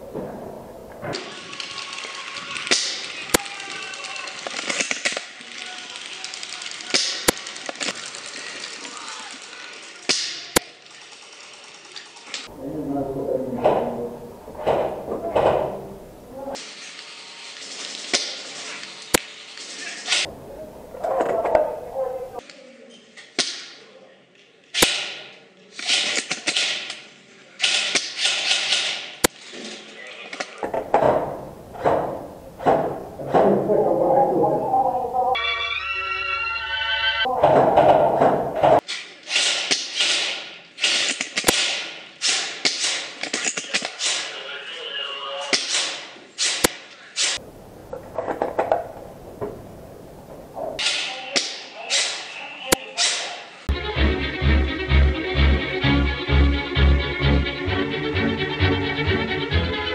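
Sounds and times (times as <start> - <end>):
airsoft rifle cracks: 2.6 - 3.6, 24.7 - 29.4
rustling and rattling: 13.4 - 22.4, 28.3 - 33.9, 37.3 - 39.0, 47.2 - 50.9.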